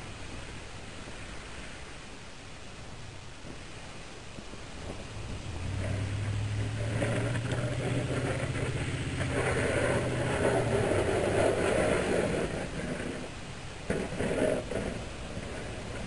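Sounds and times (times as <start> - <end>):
truck engine approaching: 5.0 - 12.7.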